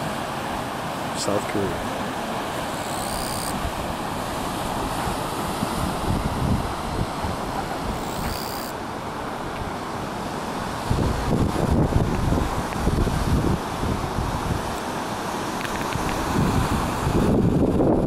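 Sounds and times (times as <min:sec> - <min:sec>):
wind buffeting microphone: 0:03.5 - 0:08.4, 0:10.6 - 0:14.8, 0:15.7 - 0:18.0
surf breaking over rocks: 0:03.5 - 0:18.0.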